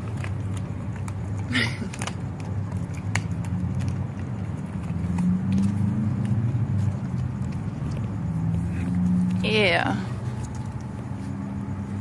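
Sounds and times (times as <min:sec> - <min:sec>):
vehicle engine humming: 0:00.0 - 0:12.0.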